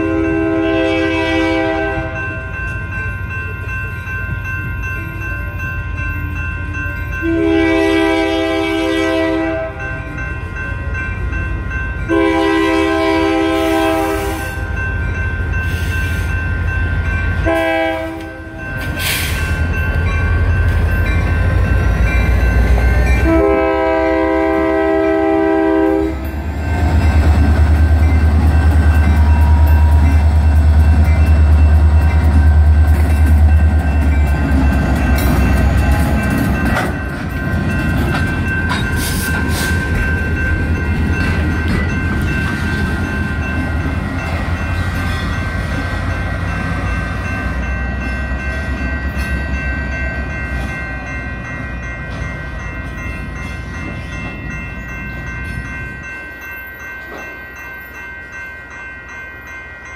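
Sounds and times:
locomotive horn: 0.0s - 2.2s, 7.2s - 9.9s, 12.1s - 14.7s, 17.4s - 18.6s, 22.9s - 26.4s
diesel locomotives running: 0.0s - 59.9s
railroad crossing bells ringing: 0.0s - 59.9s.

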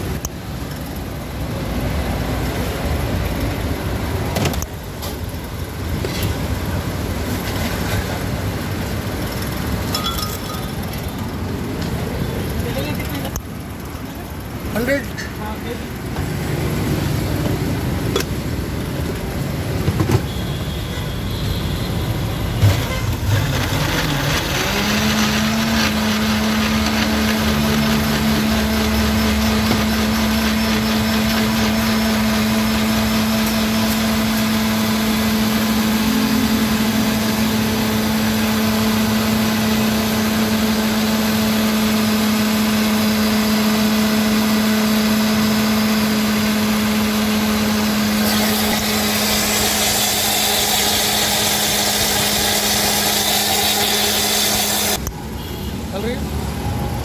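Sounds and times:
blender motor humming: 23.1s - 55.0s.

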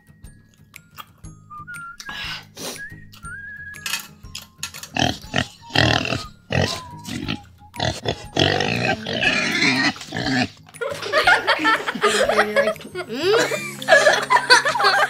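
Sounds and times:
person chewing: 5.0s - 10.5s
breathy snuffling: 5.0s - 10.6s.

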